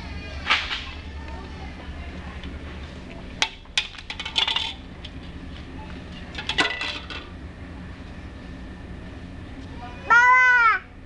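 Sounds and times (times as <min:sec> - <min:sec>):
colander clinking and clattering: 0:03.4 - 0:04.8, 0:06.3 - 0:07.3.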